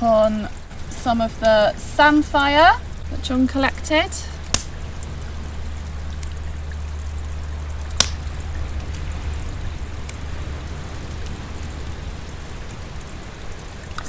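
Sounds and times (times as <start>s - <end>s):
shore background rumble and hiss: 0.0s - 14.0s.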